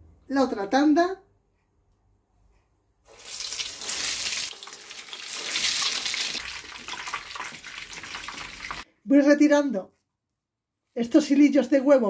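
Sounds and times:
bread sizzling in hot oil: 3.1 - 8.8.

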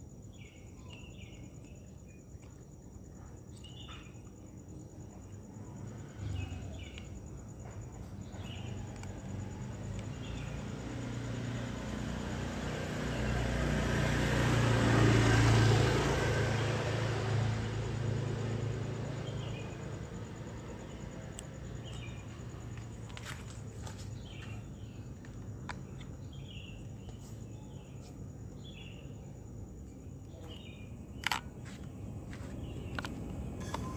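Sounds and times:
vehicle passing by: 8.9 - 24.9.

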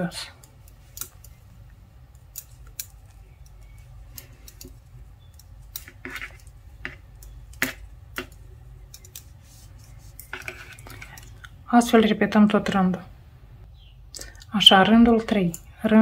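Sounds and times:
low steady hum: 0.0 - 16.0
metal knitting needles clicking: 0.4 - 9.4, 15.3 - 16.0.

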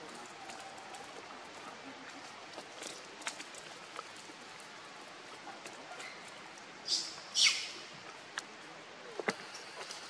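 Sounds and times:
faint background hiss: 0.0 - 10.0
shrill high-pitched animal calls: 6.9 - 7.8.

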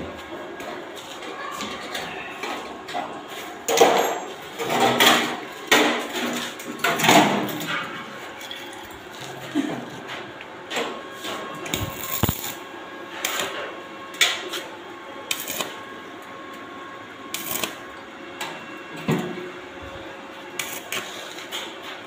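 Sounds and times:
welding arc crackling: 11.6 - 13.6, 15.2 - 15.9, 17.3 - 17.9, 20.5 - 21.6.

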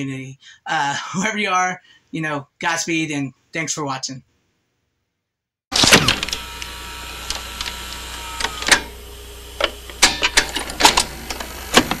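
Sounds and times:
tape mechanism clicking and clunking: 5.7 - 12.0.

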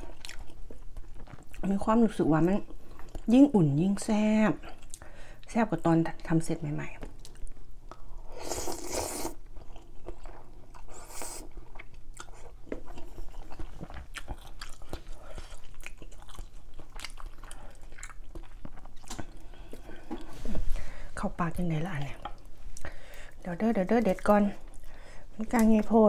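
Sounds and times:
wet chewing: 0.0 - 1.7, 7.0 - 20.3
slurping noodle soup: 8.2 - 9.5, 10.8 - 11.5.

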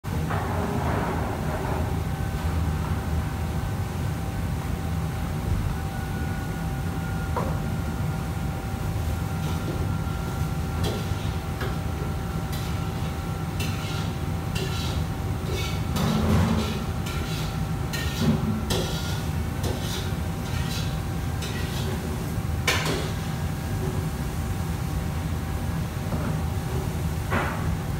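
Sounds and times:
kitchen range and hood hum: 0.0 - 27.9
utensils pans and dishes clattering: 10.8 - 23.3.

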